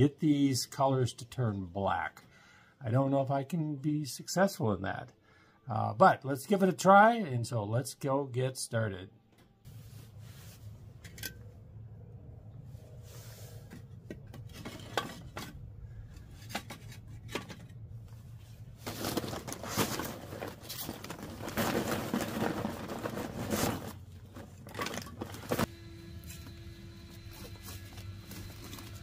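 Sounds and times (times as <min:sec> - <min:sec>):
metal clattering and scraping: 0:13.7 - 0:25.7.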